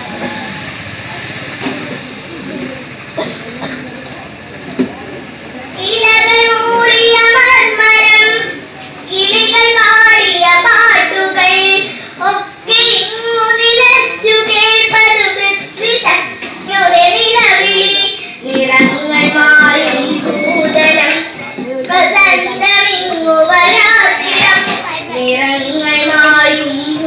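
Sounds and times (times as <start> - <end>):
girl singing into a microphone: 5.7 - 27.0.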